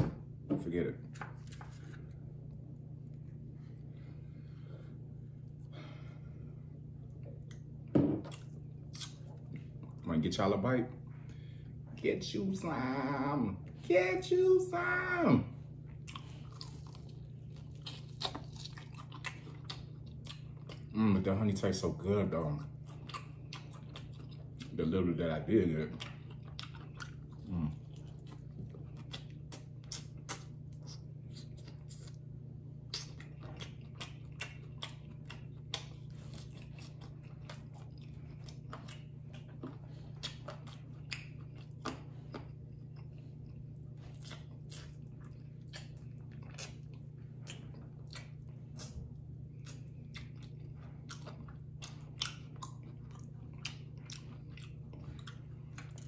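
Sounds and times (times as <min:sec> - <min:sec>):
steady low hum: 0:00.0 - 0:56.0
crunchy chewing: 0:08.3 - 0:10.1, 0:15.9 - 0:56.0.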